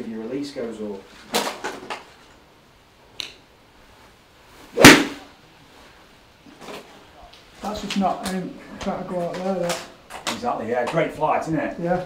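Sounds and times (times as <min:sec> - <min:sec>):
golf club striking ball: 0:04.8 - 0:05.3.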